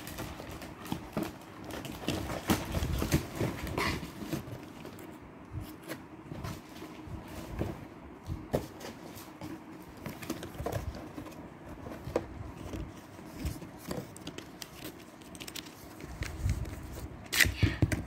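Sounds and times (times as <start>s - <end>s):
packaging taps and rustles: 0.0s - 5.1s, 7.6s - 16.9s.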